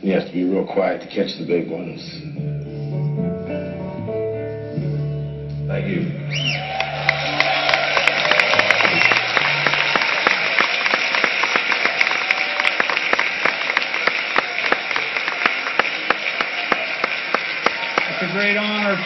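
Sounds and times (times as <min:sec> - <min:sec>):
audience applauding: 0:06.3 - 0:19.0.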